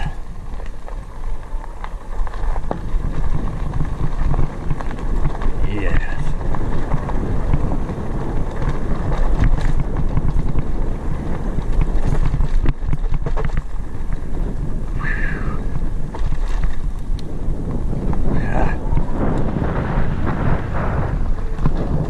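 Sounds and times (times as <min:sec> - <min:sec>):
fat bike tyres rumbling: 0:00.0 - 0:22.0
wind buffeting microphone: 0:00.0 - 0:22.0
knocks and rattles from bumps: 0:11.6 - 0:14.2.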